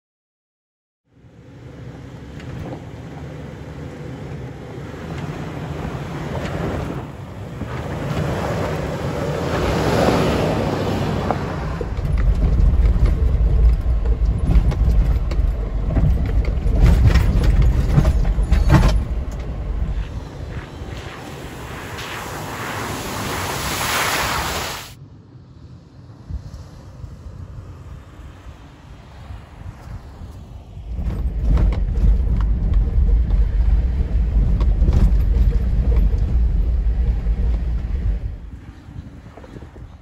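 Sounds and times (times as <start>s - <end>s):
car engine running at low speed: 1.0s - 21.2s, 29.2s - 40.0s
knocks and bumps: 11.8s - 20.2s, 30.9s - 38.4s.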